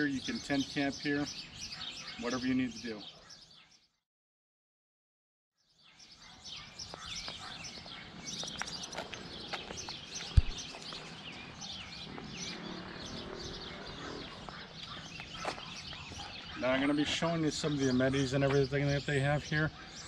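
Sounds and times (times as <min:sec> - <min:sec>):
small birds chirping: 0:00.0 - 0:04.0, 0:05.6 - 0:20.0
low thump: 0:10.3 - 0:10.6.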